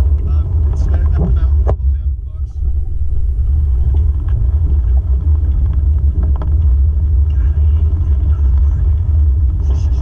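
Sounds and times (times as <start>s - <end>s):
muffled car engine and road rumble: 0.0s - 10.0s.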